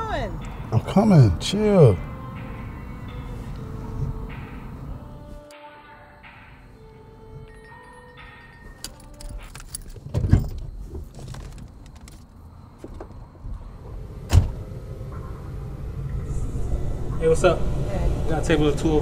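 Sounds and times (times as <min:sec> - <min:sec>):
light clicks and rattling: 0:08.8 - 0:13.2
car door opening thump: 0:14.2 - 0:14.6
car door slamming: 0:14.2 - 0:14.7.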